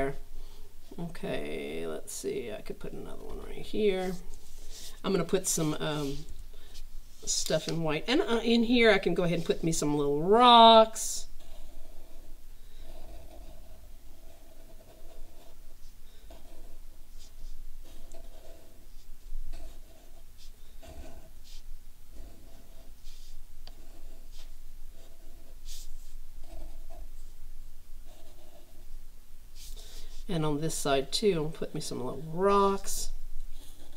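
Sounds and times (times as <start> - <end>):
marker drawing on paper: 3.9 - 10.8, 12.9 - 27.3, 29.6 - 30.3, 32.5 - 33.9.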